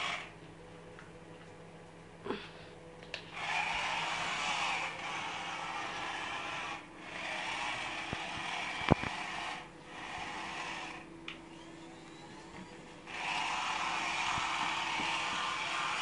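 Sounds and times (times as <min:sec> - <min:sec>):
toy motor and gears whirring: 0:00.0 - 0:00.3, 0:03.3 - 0:12.5, 0:13.1 - 0:16.0.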